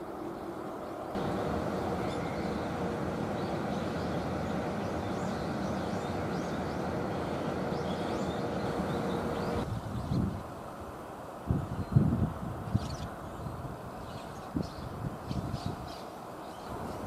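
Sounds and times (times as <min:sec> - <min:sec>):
machinery hum: 0:00.0 - 0:09.7.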